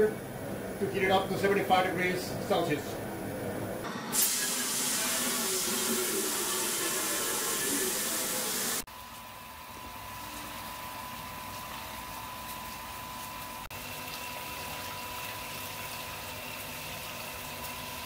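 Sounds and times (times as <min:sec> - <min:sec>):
hose water splashing into metal kettle: 0:04.1 - 0:08.9.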